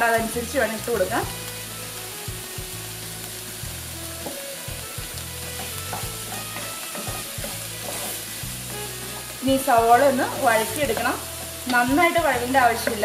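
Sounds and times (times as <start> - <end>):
onions sizzling in oil: 0.0 - 13.0
wooden spatula scraping pan: 5.4 - 13.0.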